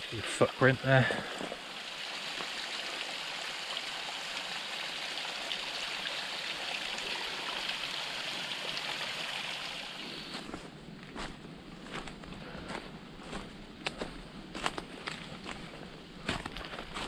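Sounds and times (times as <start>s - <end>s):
water rushing: 0.0s - 10.3s.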